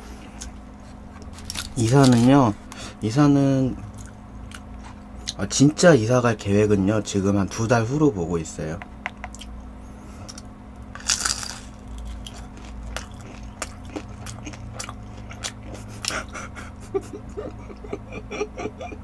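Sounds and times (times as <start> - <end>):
chewing and crunching food: 0.1 - 3.0, 3.7 - 5.4, 9.1 - 17.6.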